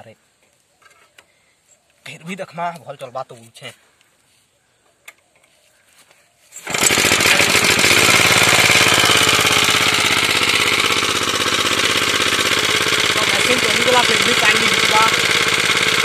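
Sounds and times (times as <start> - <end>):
small engine running: 6.6 - 16.0
water pumping: 6.6 - 16.0.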